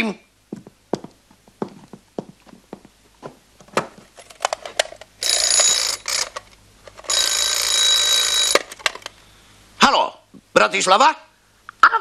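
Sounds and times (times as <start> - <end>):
telephone bell ringing: 5.2 - 6.0, 7.1 - 8.6.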